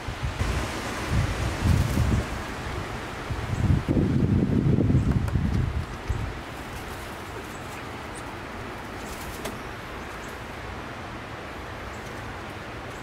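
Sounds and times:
wind buffeting microphone: 0.0s - 7.2s
rustling foliage: 0.0s - 13.0s.

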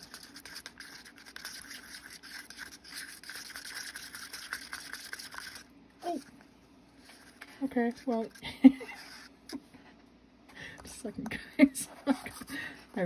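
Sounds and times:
stirring thick mix in a cup: 0.0s - 6.4s, 7.0s - 9.6s.

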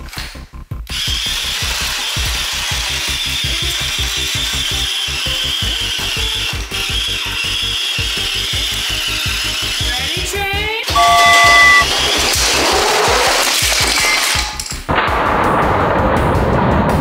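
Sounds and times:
toy train motor whining: 0.9s - 12.4s.

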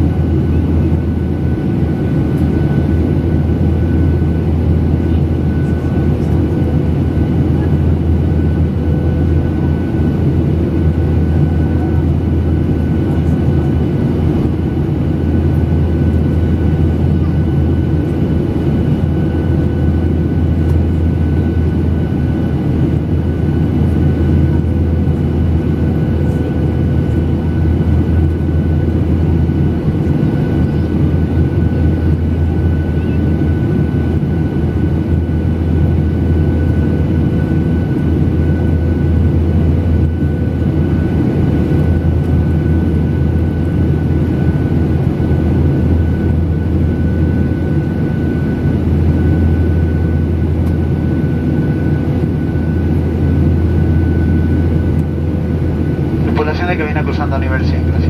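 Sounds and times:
jet engine and airflow roar: 0.0s - 58.0s
faint steady whine: 19.1s - 58.0s.

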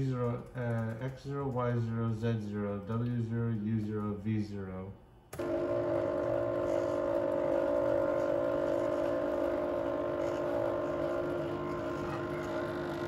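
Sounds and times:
robot arm motors whining: 5.4s - 13.0s.

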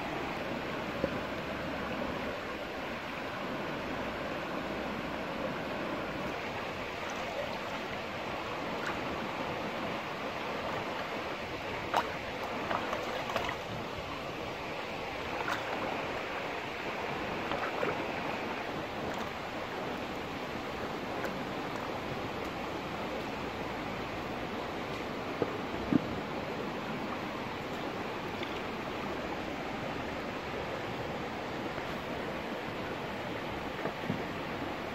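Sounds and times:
stream water running: 0.0s - 34.9s
sharp clicks and small splashes: 11.8s - 13.8s.

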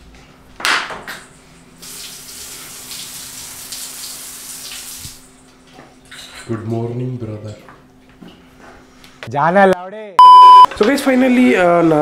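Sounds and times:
tap water running into basin: 1.8s - 6.7s.

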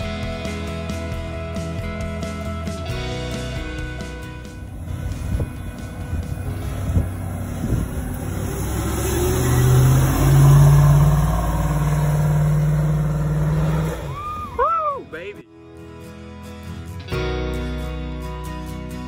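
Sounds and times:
car engine pulling under load: 3.0s - 14.6s
high squeals: 7.3s - 15.0s.

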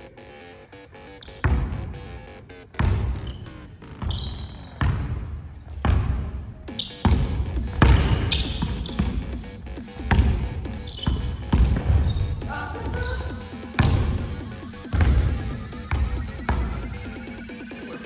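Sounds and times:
sneakers squeaking on court: 1.0s - 18.0s
basketball bouncing on hardwood floor: 1.4s - 1.8s, 2.8s - 9.3s, 10.0s - 14.3s, 14.9s - 16.8s.

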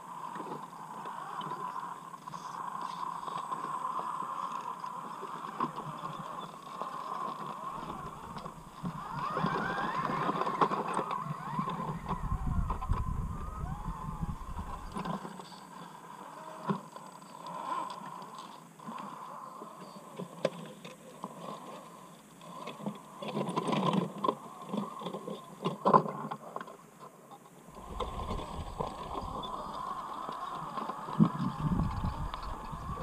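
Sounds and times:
electric motors whining: 0.3s - 20.2s, 27.7s - 33.0s.

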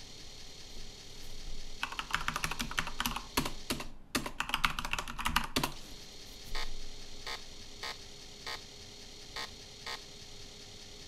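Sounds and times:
typing on keyboard: 1.8s - 5.8s.

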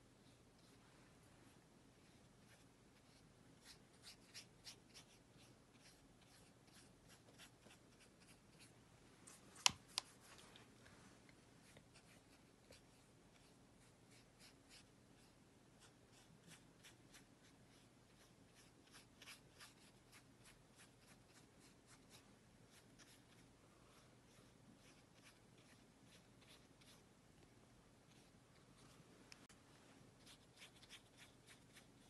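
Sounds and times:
low room hum: 0.0s - 32.0s.

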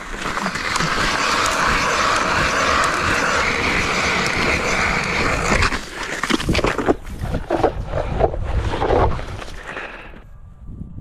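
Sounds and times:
ice auger grinding through ice: 0.0s - 10.2s.

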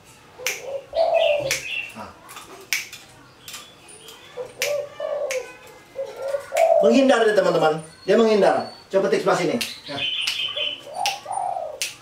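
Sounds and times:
finger snaps: 0.4s - 0.7s, 1.5s - 1.7s, 2.7s - 3.6s, 4.6s - 5.5s, 6.5s - 6.7s, 9.6s - 12.0s.

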